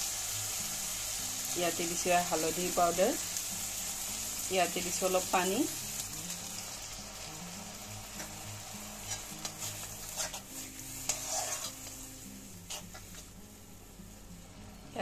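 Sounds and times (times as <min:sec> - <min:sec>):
water sizzling in hot pan: 0:00.0 - 0:15.0
spatula scraping pan: 0:09.0 - 0:13.3.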